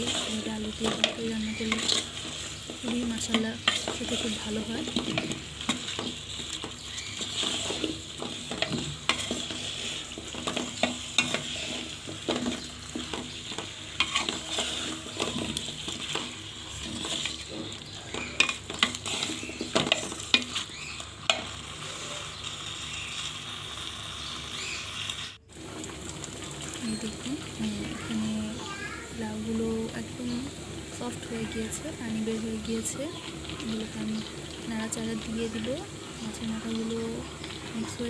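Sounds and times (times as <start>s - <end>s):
spatula scraping a pot: 0.0s - 22.5s
curry sizzling in a pot: 0.0s - 38.0s.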